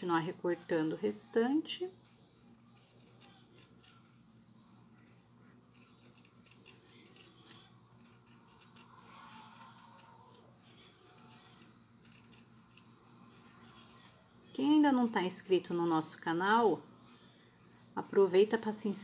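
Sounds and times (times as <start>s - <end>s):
scissors snipping fabric: 5.7s - 14.0s.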